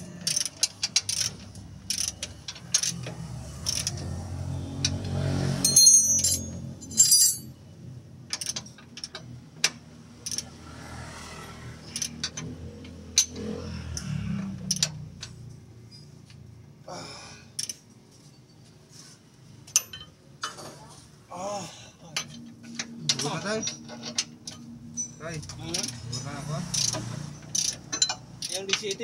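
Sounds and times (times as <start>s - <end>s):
metal tools clinking: 5.6s - 7.6s, 19.6s - 20.9s, 22.1s - 29.0s
ringing metallic clinks: 5.6s - 7.6s.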